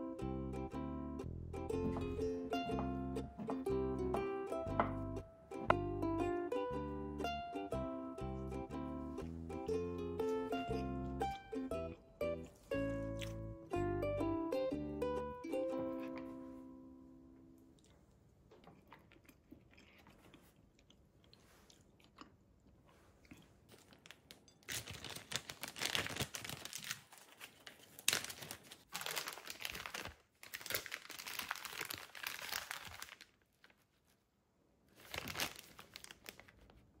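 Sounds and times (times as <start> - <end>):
plastic bags crinkling: 23.7 - 33.8, 35.0 - 36.7.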